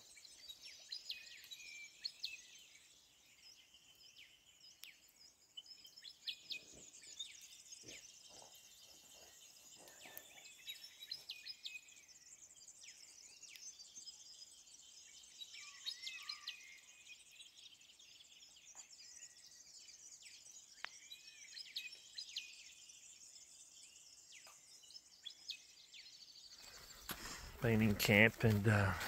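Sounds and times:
birds chirping and whistling: 0:05.6 - 0:29.0.

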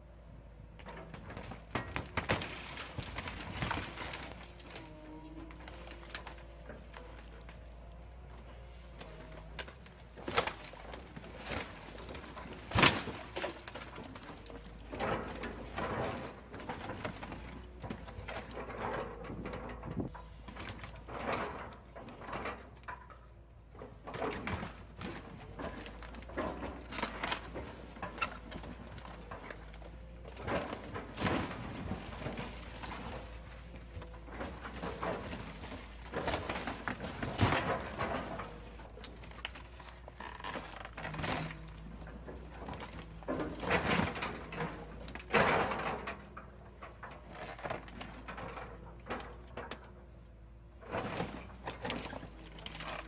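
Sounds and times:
excavator grapple crushing car: 0:00.1 - 0:53.0
sheet metal crunching and scraping: 0:23.8 - 0:49.8.

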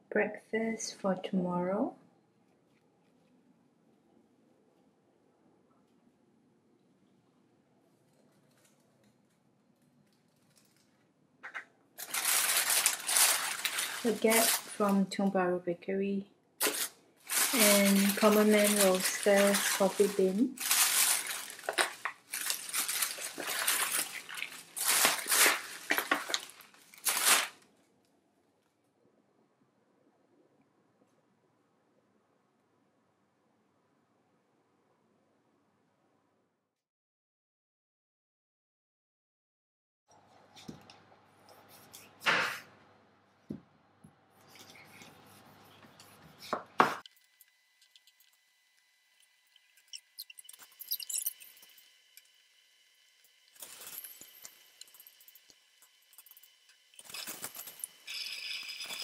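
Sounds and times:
plastic bag crinkling: 0:08.1 - 0:15.2, 0:16.6 - 0:27.7, 0:49.9 - 0:51.8, 0:53.6 - 0:55.5, 0:56.1 - 0:59.0.

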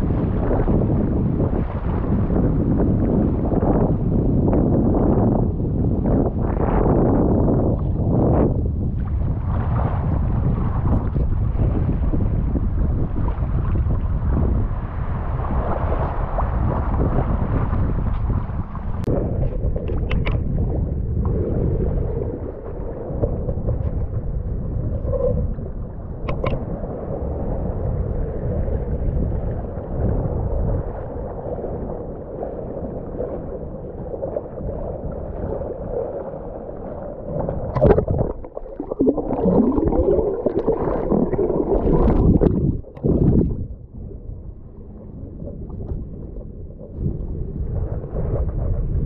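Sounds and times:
underwater bubbling: 0:00.0 - 0:49.0
water sloshing against camera housing: 0:19.4 - 0:20.6, 0:26.2 - 0:26.6, 0:37.5 - 0:39.8.

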